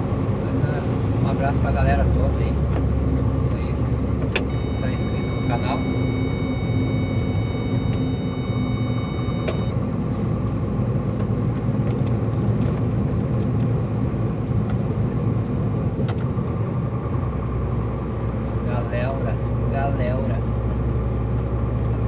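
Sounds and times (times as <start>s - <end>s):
diesel truck engine running: 0.0s - 22.0s
road noise: 0.0s - 22.0s
faint high whine: 4.5s - 9.7s.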